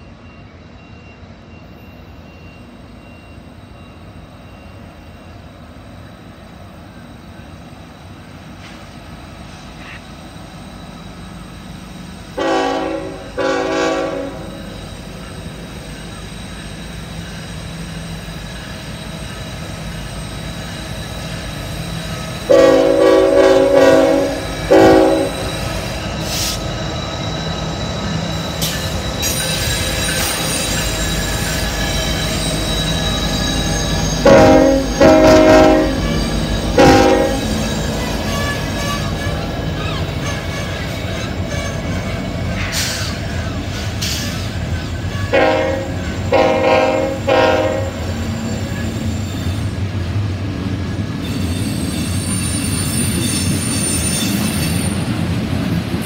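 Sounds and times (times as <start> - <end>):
diesel locomotive engines rumbling: 0.0 - 56.0
train wheel squeal: 0.0 - 56.0
locomotive air horn blasts: 12.4 - 14.6, 22.5 - 25.5, 34.2 - 36.2, 36.8 - 37.6, 45.3 - 48.1.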